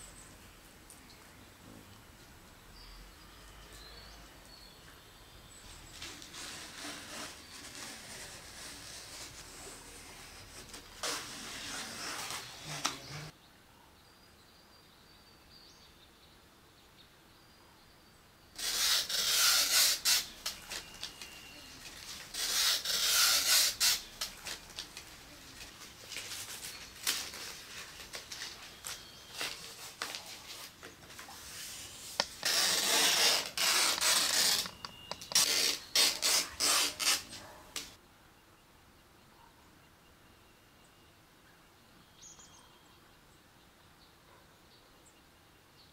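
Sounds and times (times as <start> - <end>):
dry leaf strips rustling and scraping: 5.7 - 13.3, 18.6 - 37.6.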